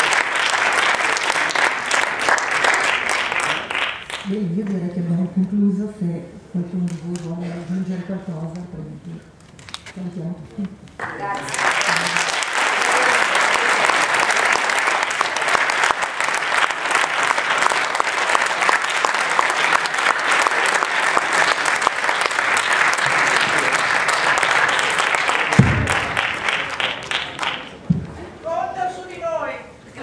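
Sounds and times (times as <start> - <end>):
audience applauding: 0.0 - 4.3, 11.0 - 27.8
low thump: 25.6 - 26.2, 27.9 - 28.2.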